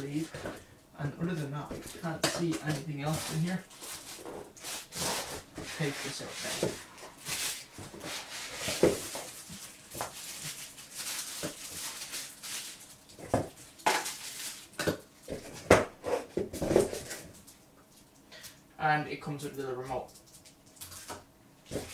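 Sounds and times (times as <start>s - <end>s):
plastic wrapping crinkling: 1.2s - 15.7s, 20.0s - 21.9s.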